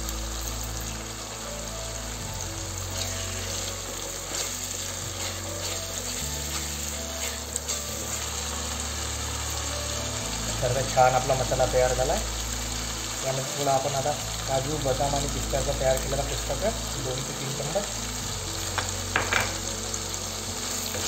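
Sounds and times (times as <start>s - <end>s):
paste sizzling in hot oil: 0.0s - 21.0s
wooden spatula scraping pan: 3.0s - 8.2s.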